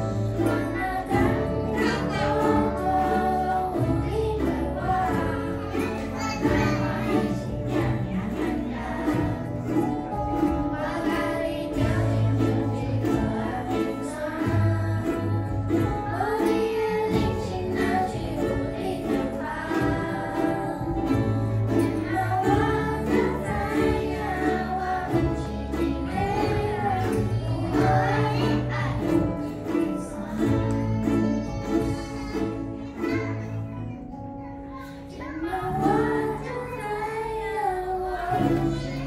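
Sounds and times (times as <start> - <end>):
low bass line: 0.0 - 16.4
children singing: 0.0 - 39.0
ukulele ensemble strumming: 0.0 - 39.0.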